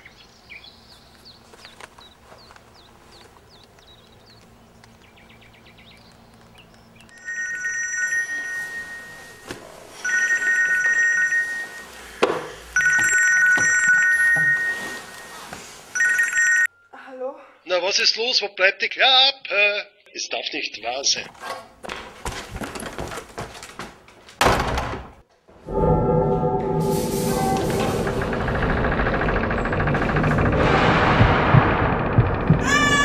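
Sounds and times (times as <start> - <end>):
telephone ringing: 7.2 - 9.4, 10.0 - 11.9, 12.8 - 14.8, 16.0 - 16.7.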